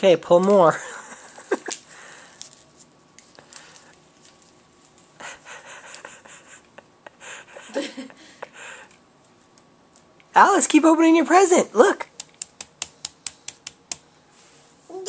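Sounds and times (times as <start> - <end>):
wrapping paper rustling: 1.6 - 5.2.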